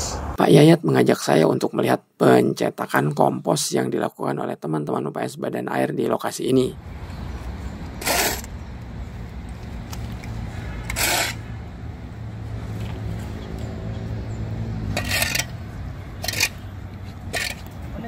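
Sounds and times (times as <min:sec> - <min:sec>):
shovels scraping concrete floor: 0:08.0 - 0:08.5, 0:10.8 - 0:11.5, 0:14.9 - 0:15.6, 0:16.2 - 0:16.6, 0:17.3 - 0:17.7.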